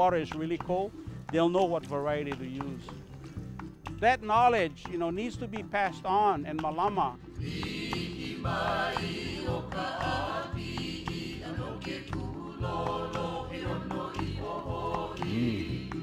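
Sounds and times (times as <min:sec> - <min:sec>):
instrumental accompaniment with beat: 0:00.0 - 0:16.0
person singing: 0:12.5 - 0:16.0.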